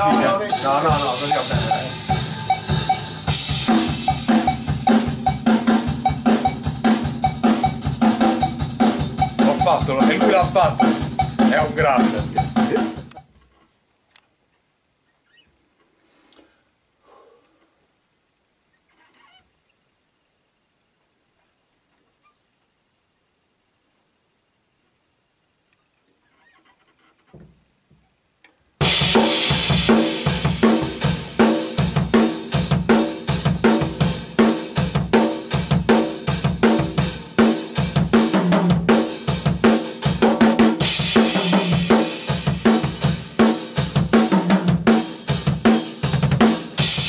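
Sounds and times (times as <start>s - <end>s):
rock drum kit played hard: 0.0s - 13.2s, 28.8s - 47.0s.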